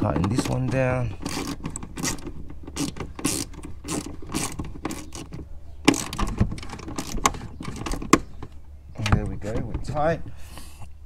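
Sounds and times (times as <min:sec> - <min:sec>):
socket ratchet clicking: 0:01.2 - 0:08.3.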